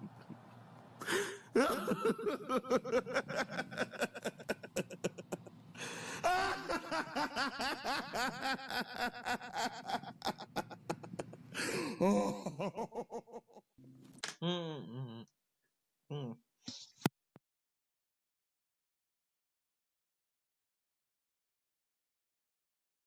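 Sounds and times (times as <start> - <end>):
person laughing in rapid bursts: 1.0 - 13.6.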